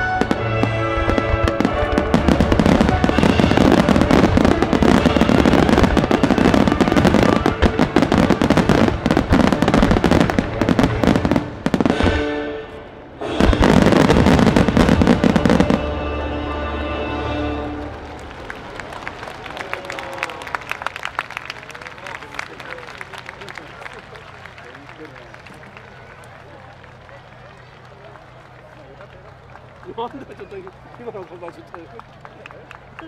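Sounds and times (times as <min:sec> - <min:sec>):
fireworks bursting: 0:00.0 - 0:12.4, 0:13.2 - 0:19.8
music playing: 0:00.0 - 0:19.0.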